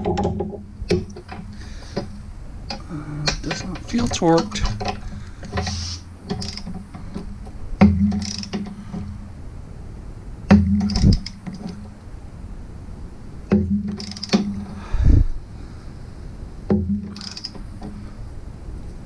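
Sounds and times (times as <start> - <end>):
low ringing hum: 0.0 - 19.0
socket wrench clicking: 4.6 - 6.8, 8.1 - 8.7, 13.9 - 14.5, 17.1 - 17.7.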